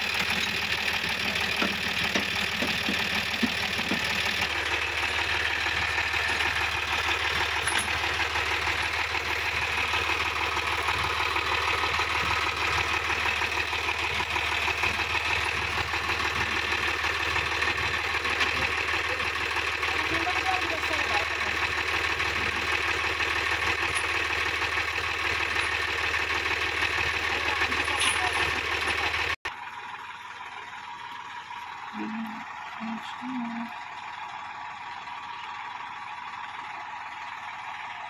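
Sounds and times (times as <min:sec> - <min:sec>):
tractor diesel engines running: 0:00.0 - 0:38.0.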